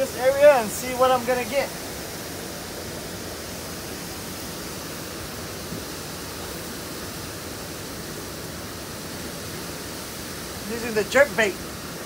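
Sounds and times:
water gushing from pipe: 0.0 - 12.0.

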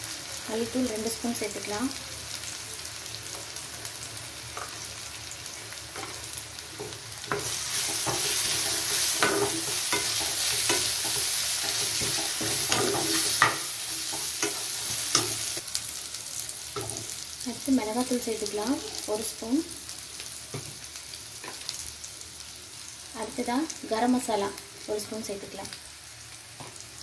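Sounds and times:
onions sizzling in hot oil: 0.0 - 27.0
spatula scraping a pan: 6.0 - 15.6.

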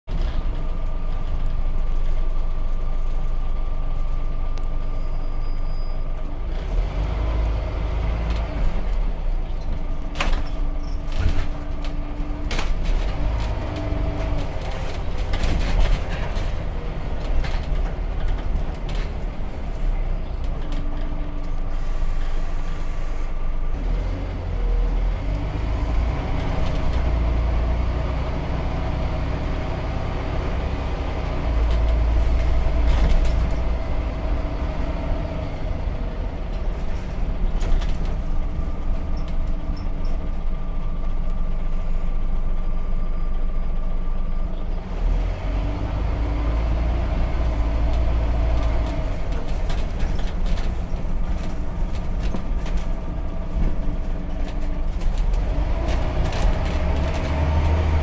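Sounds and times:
bus diesel engine rumbling: 0.0 - 58.0
rattles and knocks in bus body: 8.2 - 21.5, 26.1 - 41.8, 47.0 - 58.0.

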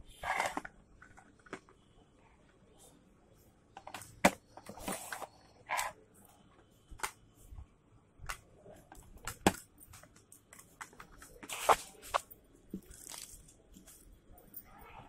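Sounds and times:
plastic boxes clicking and rustling: 0.2 - 1.8.

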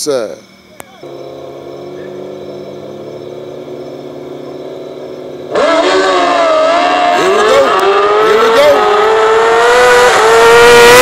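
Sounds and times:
motorcycle engines revving: 0.9 - 11.0.

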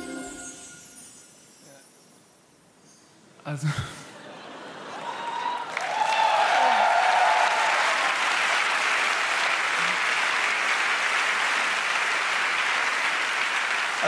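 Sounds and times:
audience applauding: 4.7 - 14.0.

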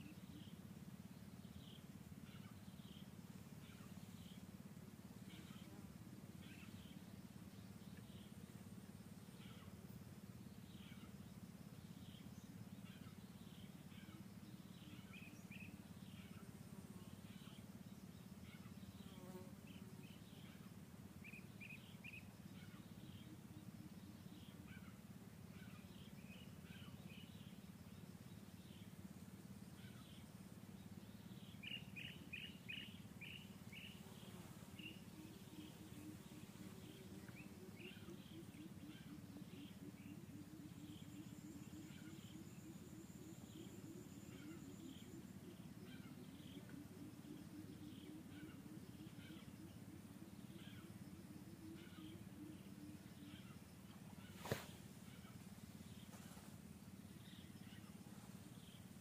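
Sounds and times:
steady low hum: 0.0 - 59.0
bird chirps: 31.2 - 58.9.

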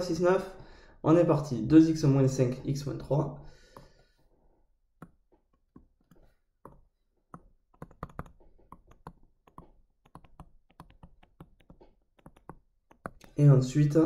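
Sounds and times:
stylus tapping on tablet screen: 4.9 - 13.4.

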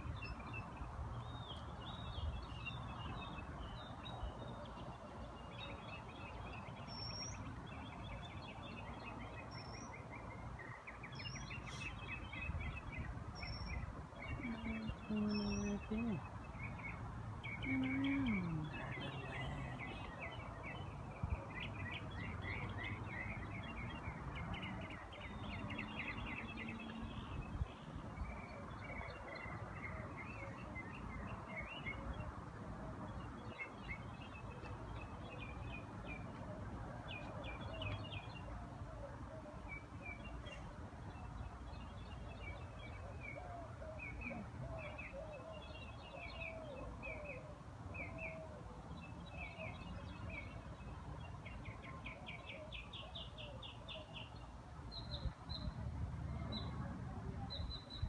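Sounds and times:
birds chirping: 11.2 - 20.9.

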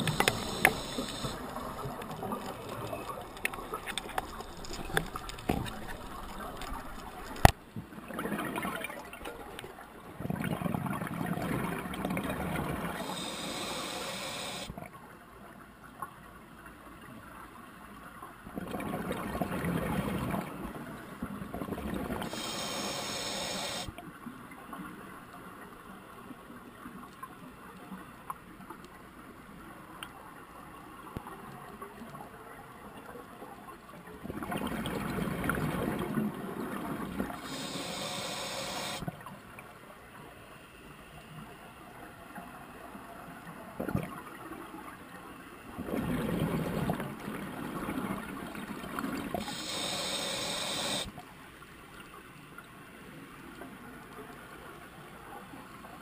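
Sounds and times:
regulator hiss: 0.0 - 2.0, 13.0 - 14.7, 22.2 - 23.9, 37.4 - 39.0, 49.4 - 51.1
exhaled bubbles gurgling underwater: 0.0 - 14.7, 18.5 - 23.9, 34.2 - 39.4, 45.7 - 51.1.

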